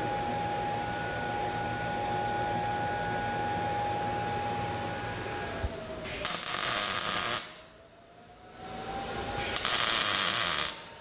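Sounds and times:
welding arc hissing: 0:06.0 - 0:07.7, 0:09.4 - 0:10.9.

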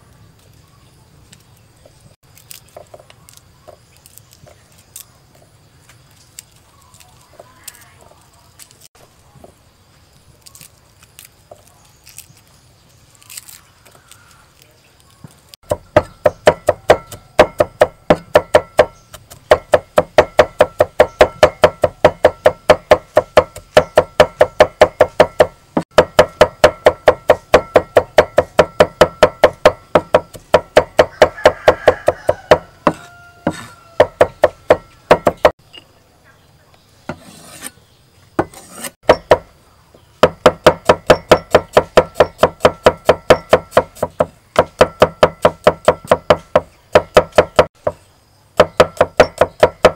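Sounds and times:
cleaver chopping on wooden block: 0:15.6 - 0:35.6, 0:38.4 - 0:39.5, 0:40.2 - 0:48.0, 0:48.6 - 0:49.9.

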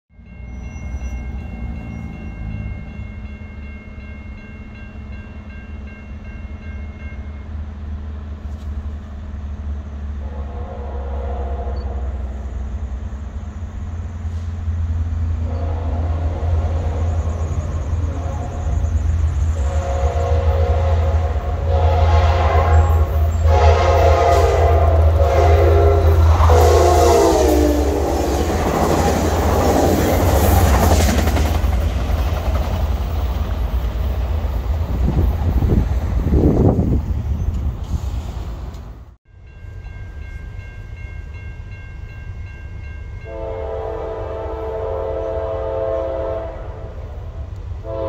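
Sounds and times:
diesel locomotive engine rumble: 0:00.1 - 0:48.0
train air horn blasts: 0:10.2 - 0:12.4, 0:15.3 - 0:28.4, 0:43.2 - 0:48.0.

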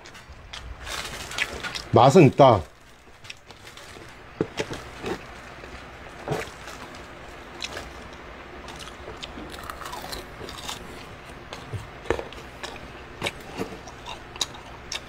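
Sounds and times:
dry seaweed crinkling and crackling: 0:00.2 - 0:11.7.

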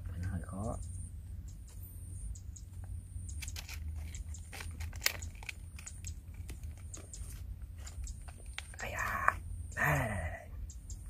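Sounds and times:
foil crinkling: 0:03.4 - 0:07.4.

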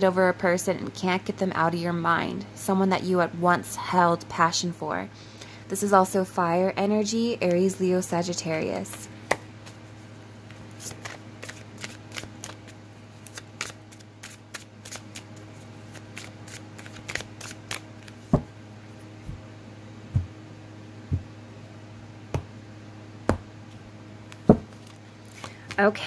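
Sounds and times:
faint steady hum: 0:00.0 - 0:26.0
cards being shuffled: 0:10.4 - 0:18.5, 0:24.3 - 0:26.0
deck tapped on table: 0:24.4 - 0:24.8.

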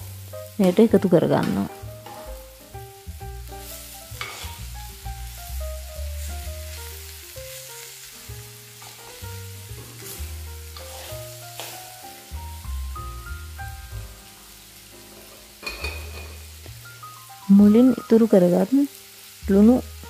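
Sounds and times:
food sizzling in a pot: 0:00.0 - 0:20.0
soft background music: 0:00.0 - 0:20.0
metal spoon scraping pot: 0:10.8 - 0:11.2.

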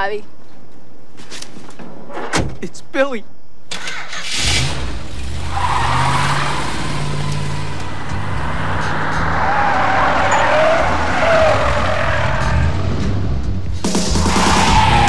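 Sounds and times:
tires squealing: 0:04.4 - 0:15.0
car engine running hard: 0:05.1 - 0:15.0.

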